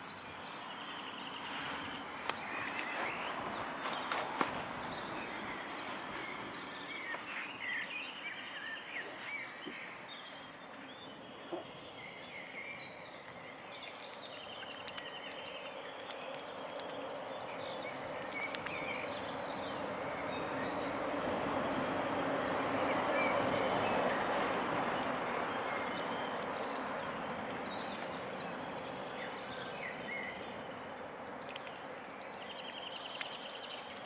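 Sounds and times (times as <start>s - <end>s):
songbirds chirping and trilling: 0.0s - 34.0s.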